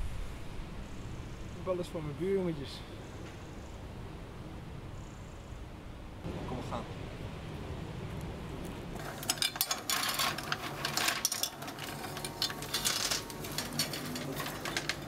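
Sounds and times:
loose sweets clattering: 9.0 - 15.0.

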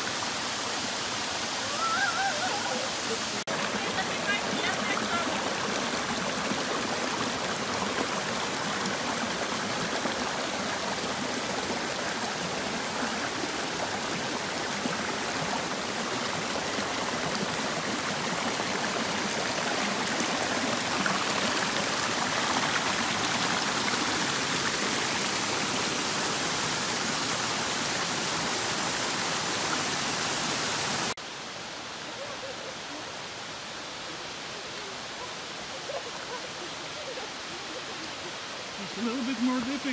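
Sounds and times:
creek running over rocks: 0.0 - 39.9.

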